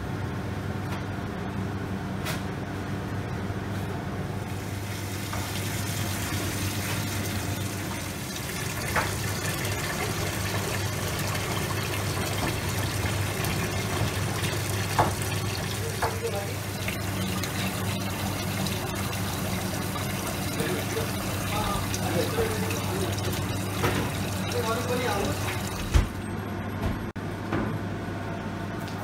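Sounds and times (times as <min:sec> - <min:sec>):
tap water pouring into metal bowl: 0:05.0 - 0:26.0.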